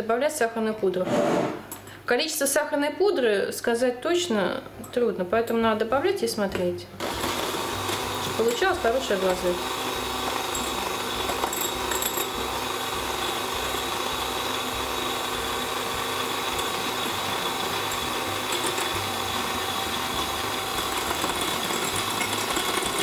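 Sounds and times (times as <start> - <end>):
electric hand mixer running: 7.0 - 23.0.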